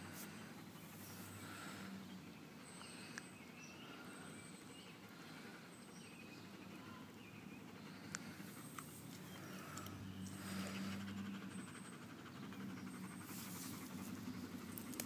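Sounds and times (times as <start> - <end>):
dog panting: 3.9 - 15.0.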